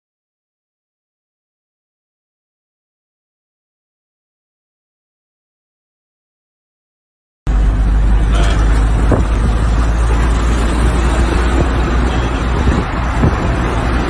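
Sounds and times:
heavy trucks rumbling past: 7.5s - 14.0s.

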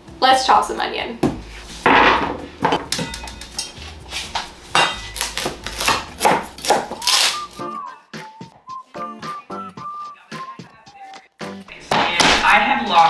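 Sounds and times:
music: 0.0s - 13.0s
knife chopping on cutting board: 4.3s - 7.4s.

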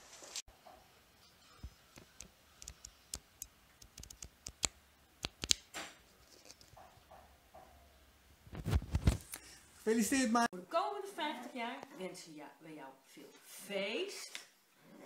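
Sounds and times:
flip book pages clicking: 2.0s - 5.7s
paper rustle: 8.6s - 9.3s.

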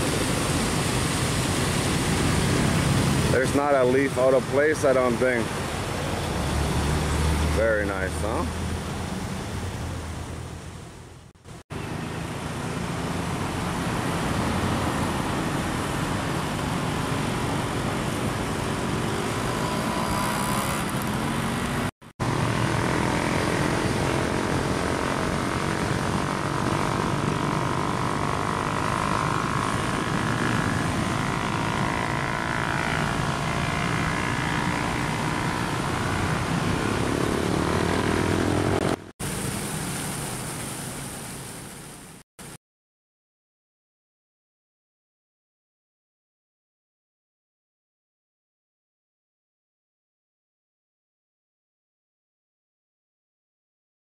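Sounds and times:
vehicles passing: 0.0s - 41.0s
road traffic rumble: 0.0s - 42.6s.

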